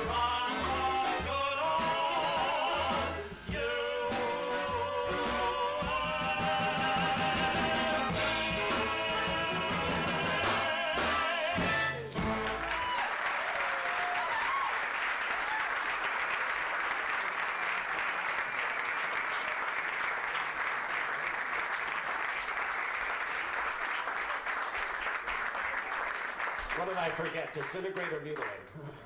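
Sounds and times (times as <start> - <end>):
men singing with piano and bass: 0.0 - 12.2
audience applauding: 12.0 - 28.7.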